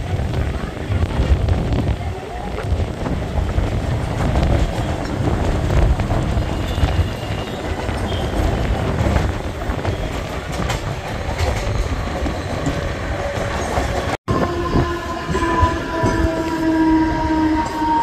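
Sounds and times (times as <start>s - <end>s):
train wheels clickety-clack: 0.1s - 14.2s.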